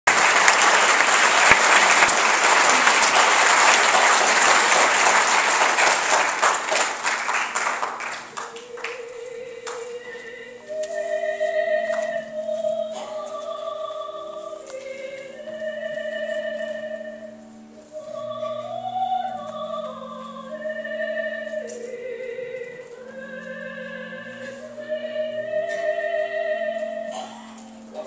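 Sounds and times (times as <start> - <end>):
audience applause: 0.0 - 9.0
choir singing long notes: 0.1 - 28.0.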